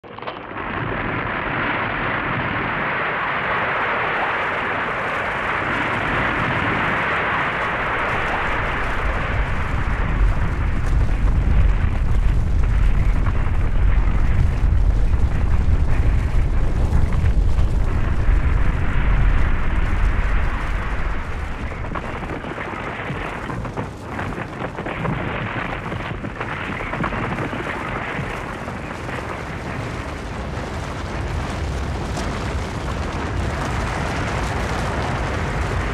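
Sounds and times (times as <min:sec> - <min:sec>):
avalanche snow rushing and rumbling: 0:00.1 - 0:35.9.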